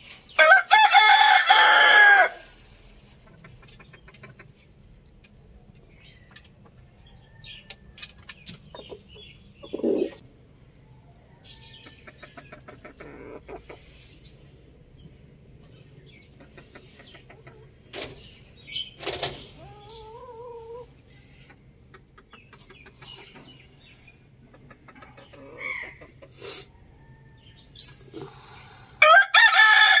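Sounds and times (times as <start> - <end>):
rooster crowing: 0.4 - 2.5, 29.0 - 30.0
chickens clucking: 2.6 - 28.9.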